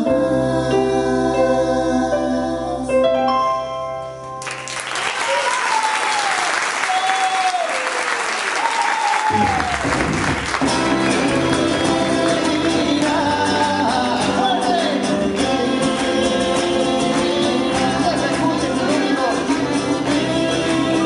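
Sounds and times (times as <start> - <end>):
audience applause: 4.4 - 21.0
live band with acoustic guitar: 9.2 - 21.0.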